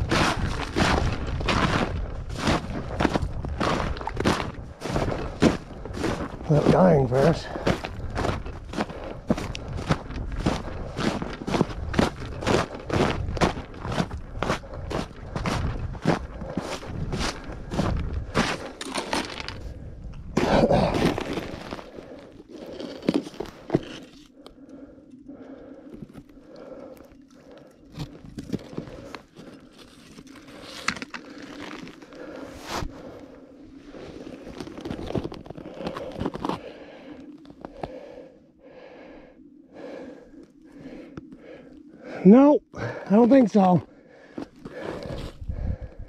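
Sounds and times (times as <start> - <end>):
boots crunching in snow: 0.0 - 19.5
person breathing: 7.2 - 43.1, 43.8 - 46.0.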